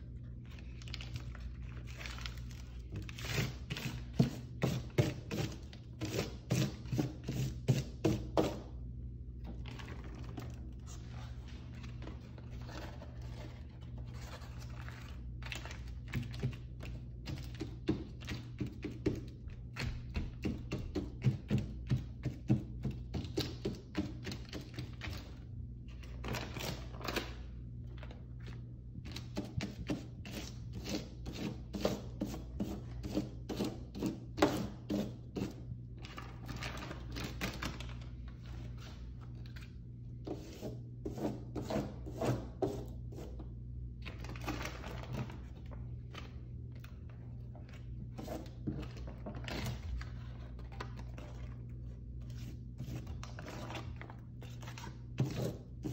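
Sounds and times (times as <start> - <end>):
paper tapping and crinkling: 0.4 - 5.5, 9.5 - 25.3, 25.9 - 30.0, 44.0 - 55.9.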